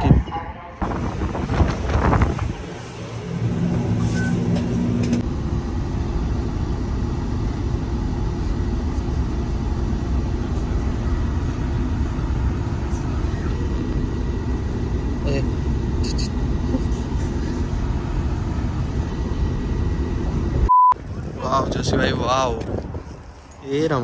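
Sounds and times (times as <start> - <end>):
bus engine and road rumble: 0.0 - 24.0
short beep: 20.7 - 21.0.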